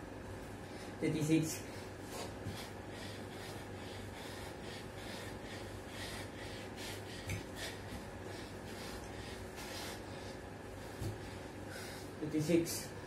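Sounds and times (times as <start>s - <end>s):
low steady hum: 0.0s - 13.0s
man breathing hard: 1.6s - 12.2s.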